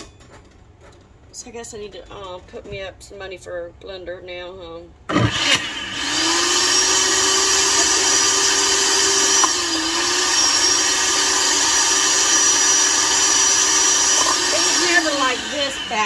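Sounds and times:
blender motor humming: 5.1s - 16.0s.

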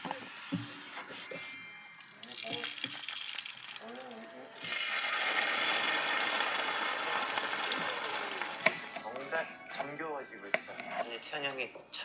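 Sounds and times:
egg sizzling in a hot pan: 2.2s - 3.8s, 4.6s - 8.9s.

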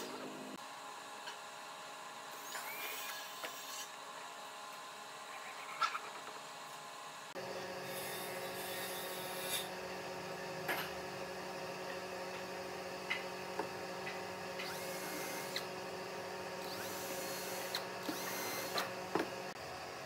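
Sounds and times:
steady low hum: 3.9s - 20.0s
cordless drill whining into wood: 14.6s - 15.7s, 16.6s - 18.9s.

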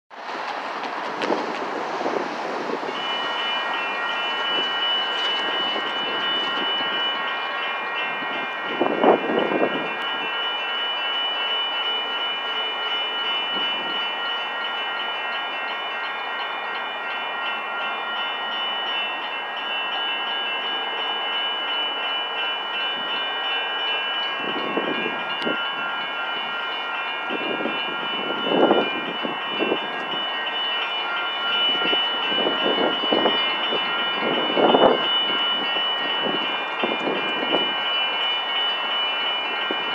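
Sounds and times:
traffic noise: 0.1s - 10.8s
railroad crossing bell ringing: 1.2s - 39.9s.

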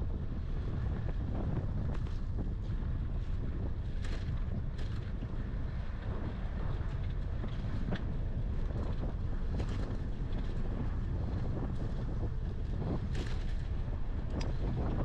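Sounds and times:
wind buffeting microphone: 0.0s - 15.0s
bike rattles and knocks: 3.2s - 11.9s.

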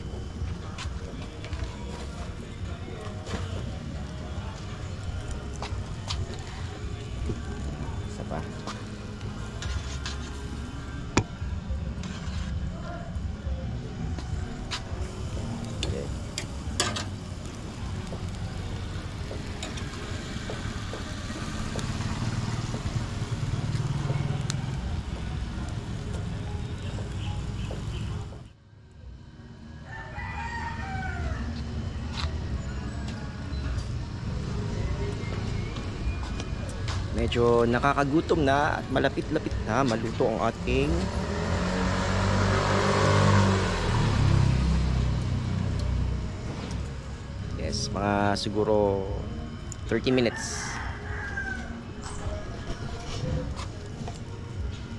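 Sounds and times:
vehicle engine running: 0.0s - 28.5s, 31.4s - 50.8s
low traffic rumble: 0.0s - 54.9s
vehicle driving past: 18.0s - 28.4s, 39.2s - 47.5s.

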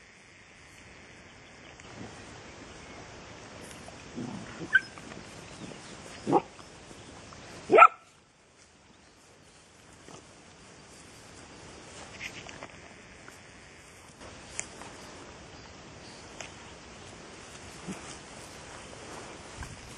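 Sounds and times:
dogs play-fighting: 3.7s - 6.6s, 17.4s - 19.5s
short dog barks: 7.7s - 8.1s.

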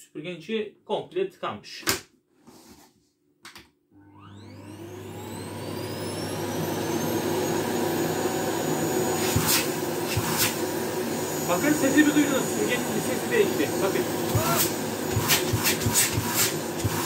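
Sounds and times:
vacuum cleaner motor whining: 4.0s - 17.0s.

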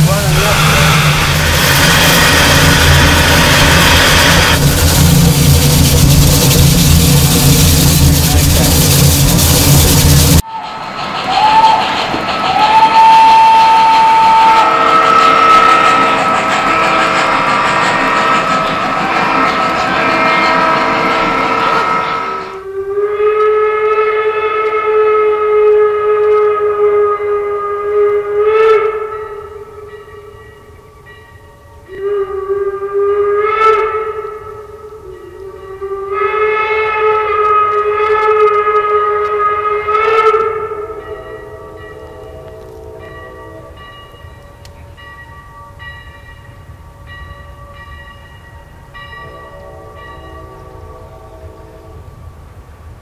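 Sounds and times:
lower sustained tone: 0.0s - 11.8s
steam locomotive whistle: 0.0s - 30.4s, 31.8s - 45.1s, 49.0s - 52.2s
steam locomotive bell ringing: 12.5s - 22.7s, 29.1s - 32.4s, 34.1s - 38.5s, 40.3s - 52.2s.

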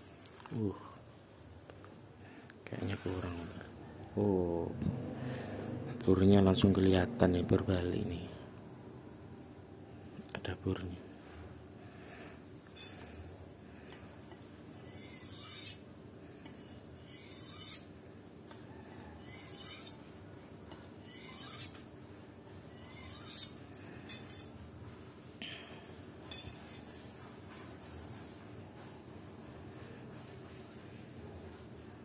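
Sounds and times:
knife scraping on sharpening steel: 14.7s - 17.9s, 19.2s - 20.1s, 20.7s - 21.8s, 22.7s - 24.6s, 26.3s - 27.0s.

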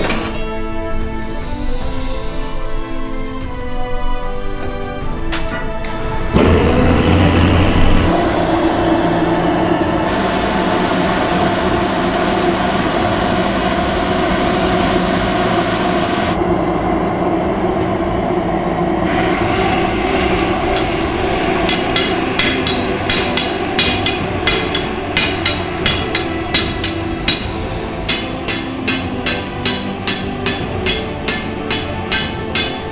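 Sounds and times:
gas forge burner roaring: 0.0s - 32.9s
hammer striking metal on anvil: 20.7s - 32.9s.

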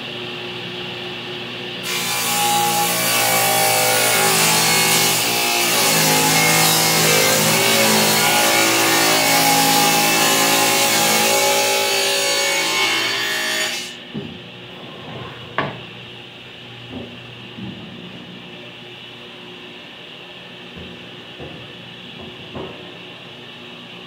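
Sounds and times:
table saw cutting wood: 1.8s - 14.0s.

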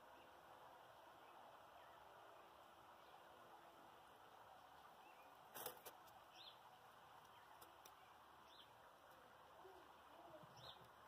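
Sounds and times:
faint bird chirps: 9.6s - 10.9s.

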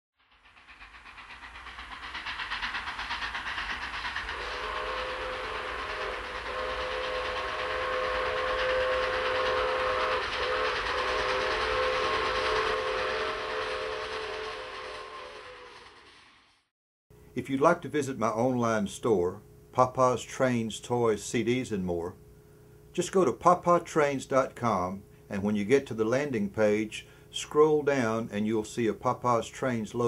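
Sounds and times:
steam locomotive chuffing: 0.2s - 16.7s, 17.4s - 30.0s
multi-note steam whistle: 4.0s - 16.2s.

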